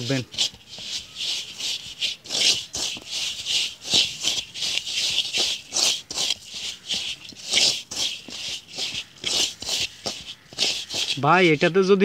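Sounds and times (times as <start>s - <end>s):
hands rubbing dry bait in bowl: 0.0s - 12.0s.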